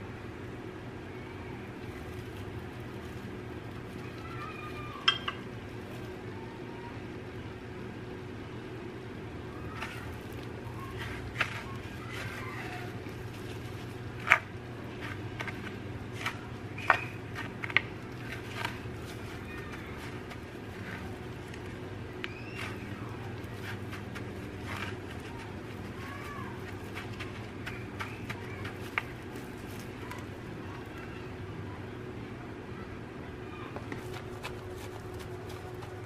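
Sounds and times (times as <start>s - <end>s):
steady low hum: 0.0s - 36.0s
gloved hands rustling and crinkling: 1.7s - 6.4s, 9.5s - 31.1s, 33.8s - 36.0s.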